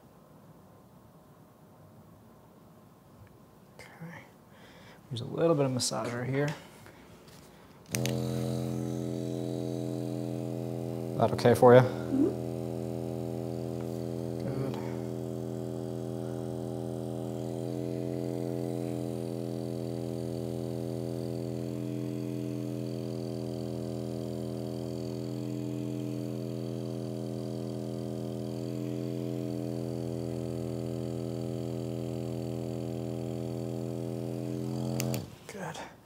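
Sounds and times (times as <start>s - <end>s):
massage gun motor humming: 7.9s - 35.4s.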